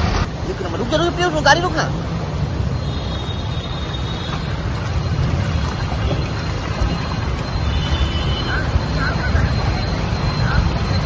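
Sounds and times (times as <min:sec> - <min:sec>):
vehicle engines running: 0:00.0 - 0:11.0
water splashing and churning: 0:00.0 - 0:11.0.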